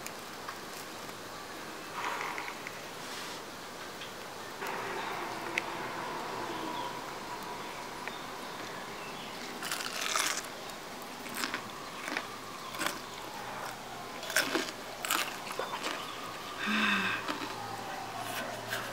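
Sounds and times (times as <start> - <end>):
crunching and chewing fried food: 0.0 - 1.2, 9.2 - 18.9.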